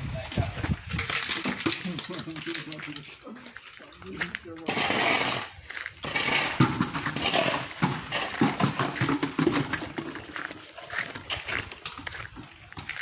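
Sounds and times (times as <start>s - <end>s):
metal buckets knocking: 0.2s - 3.2s, 4.6s - 12.9s
shovel scraping through concrete: 4.5s - 12.0s.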